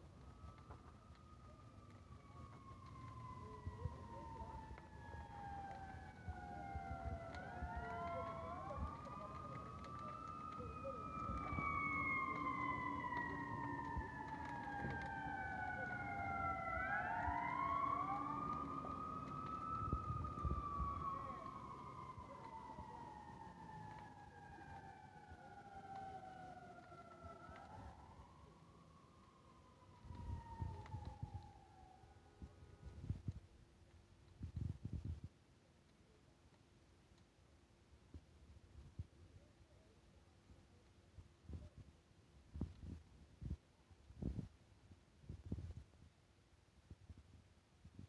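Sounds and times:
emergency vehicle sirens wailing: 0.0s - 33.2s.

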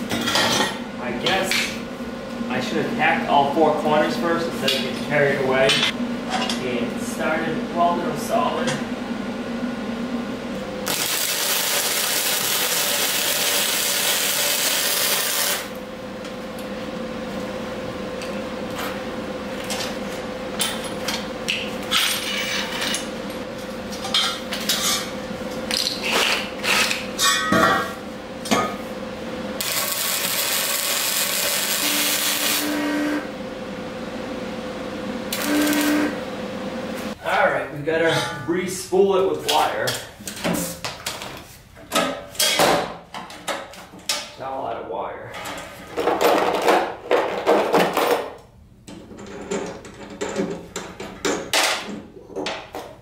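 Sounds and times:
welder arc crackling: 10.8s - 15.8s, 29.6s - 32.8s, 35.3s - 36.2s.

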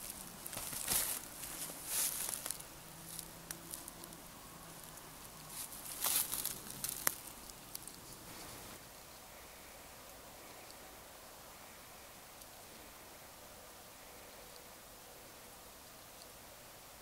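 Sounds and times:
footsteps rustling through leaves: 0.0s - 4.2s, 4.8s - 7.5s.

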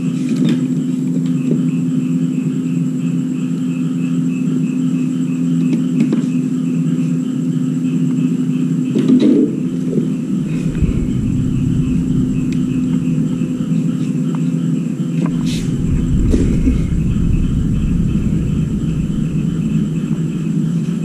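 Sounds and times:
machine humming: 9.5s - 14.1s, 15.3s - 21.0s
low rumble: 9.5s - 14.2s, 15.2s - 21.0s
pulsing high whine: 9.5s - 14.2s, 15.2s - 21.0s.

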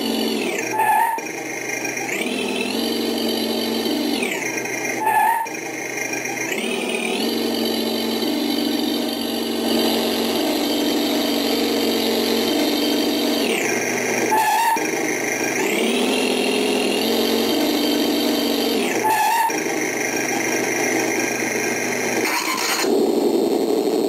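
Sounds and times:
synthetic engine sound revving: 0.0s - 24.0s
short electronic tone: 22.2s - 24.0s.

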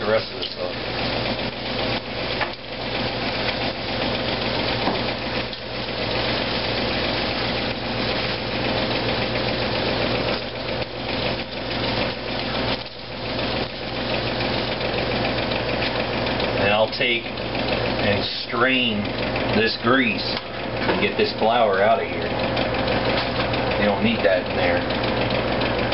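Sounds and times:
tomato slices sizzling in oil: 0.0s - 16.6s
fan humming: 0.0s - 25.9s.

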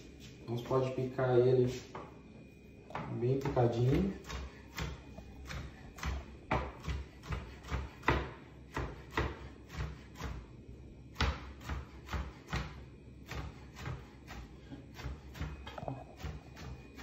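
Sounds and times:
knife chopping on plastic board: 3.0s - 10.4s, 11.1s - 15.6s.

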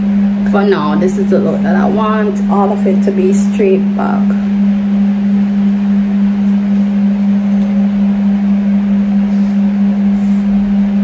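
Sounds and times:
loud steady low hum: 0.0s - 11.0s.

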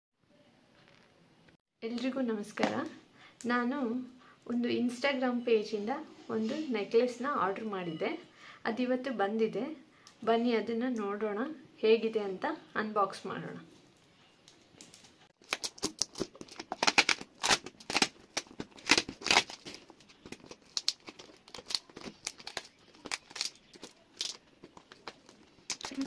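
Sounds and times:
plastic crinkling: 14.5s - 26.0s
scissors snipping plastic: 15.4s - 26.0s.

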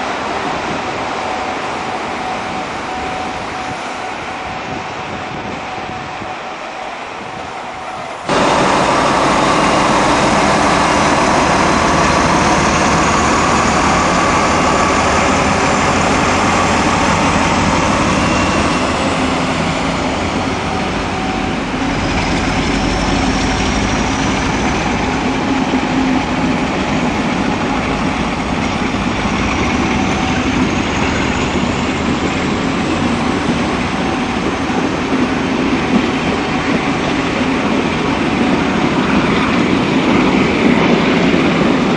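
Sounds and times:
diesel locomotive engine drone: 0.0s - 41.9s
train coaches rolling: 0.0s - 41.9s.

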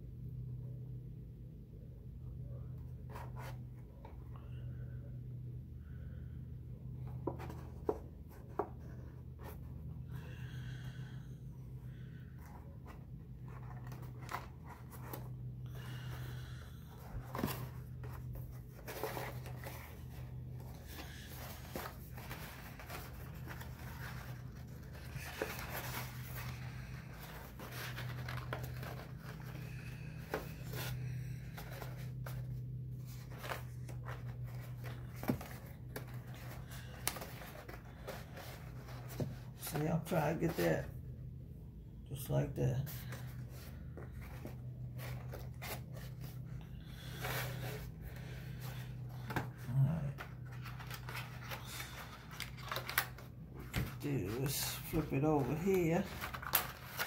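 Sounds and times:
low steady hum: 0.0s - 57.0s
cardstock rustling and crinkling: 11.9s - 40.9s, 42.8s - 57.0s.

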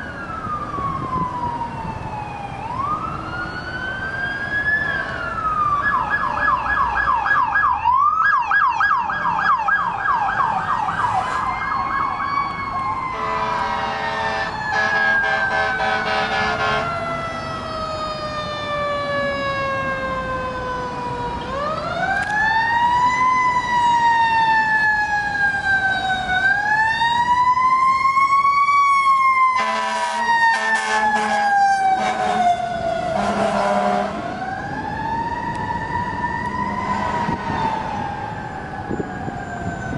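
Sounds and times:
emergency sirens: 0.0s - 39.9s
horn blasts: 13.1s - 16.9s, 29.6s - 32.6s, 33.2s - 34.2s, 36.8s - 37.4s.

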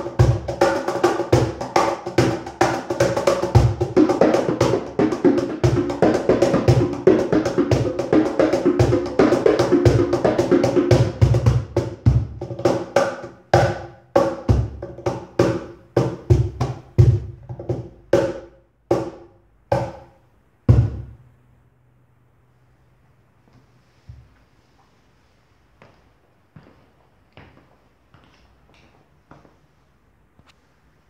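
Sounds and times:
hand drums slaps and bass strokes: 0.0s - 20.1s.

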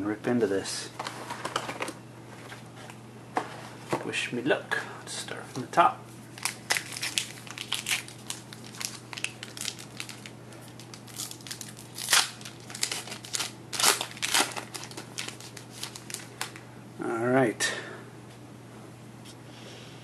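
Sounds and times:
wrapper crinkling and ripping: 6.3s - 16.6s.

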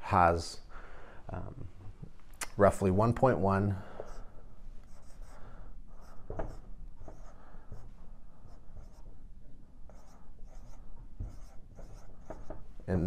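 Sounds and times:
marker squeaking on whiteboard: 4.9s - 7.8s, 9.9s - 12.7s.

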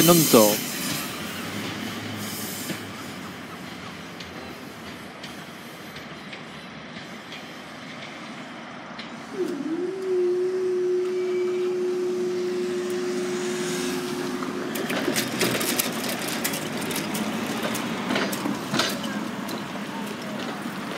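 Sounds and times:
road traffic noise: 0.0s - 20.9s
hydraulic pump whining: 9.3s - 19.7s.

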